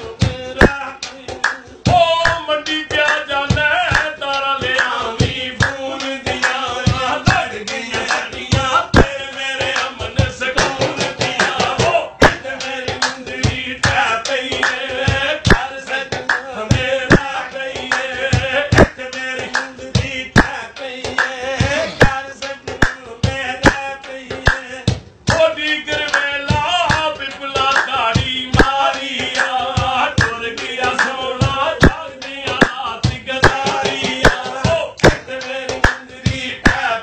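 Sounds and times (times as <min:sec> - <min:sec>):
man singing folk song: 0:00.0 - 0:37.0
hand drumming on metal pot: 0:03.5 - 0:19.5, 0:20.3 - 0:21.2, 0:23.6 - 0:36.0.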